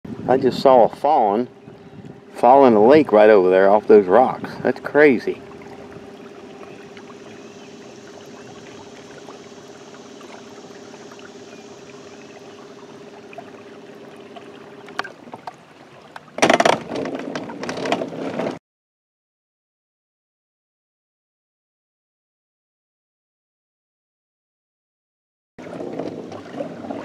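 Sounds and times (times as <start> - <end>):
small motor humming: 5.4 - 15.2.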